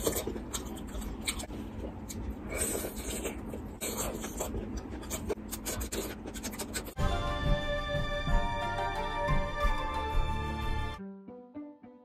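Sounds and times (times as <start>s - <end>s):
chewing and mouth clicks: 0.0s - 7.0s.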